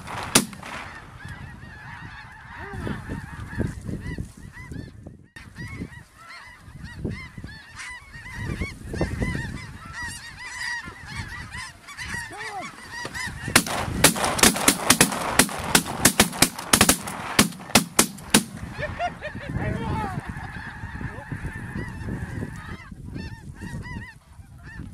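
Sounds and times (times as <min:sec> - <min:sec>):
shotgun blasts: 0:00.0 - 0:01.0, 0:13.5 - 0:18.7
geese honking: 0:00.0 - 0:24.9.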